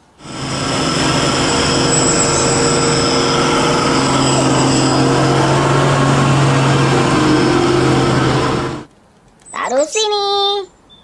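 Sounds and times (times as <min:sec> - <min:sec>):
diesel truck engine drone: 0:00.0 - 0:08.9.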